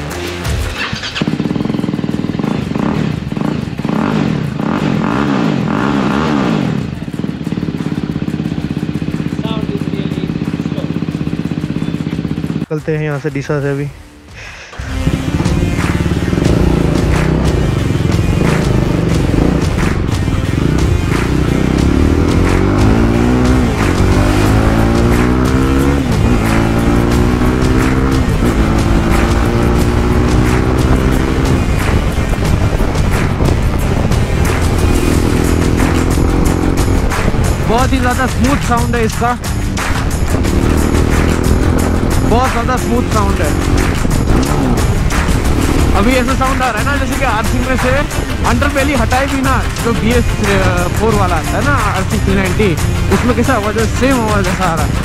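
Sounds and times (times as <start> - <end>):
motorcycle engine revving: 0.0 - 12.8, 14.7 - 55.0.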